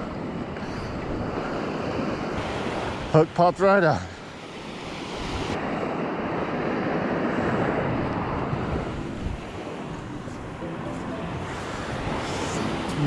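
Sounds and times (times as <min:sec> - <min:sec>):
wind buffeting microphone: 0:00.0 - 0:03.2, 0:04.6 - 0:10.6
surf washing onto sandy beach: 0:00.0 - 0:13.0.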